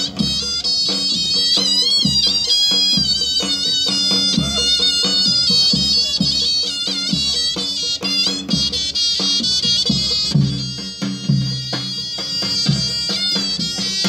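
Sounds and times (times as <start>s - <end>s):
big drum beat: 0.0s - 14.0s
shrill reed-pipe melody: 0.0s - 14.0s.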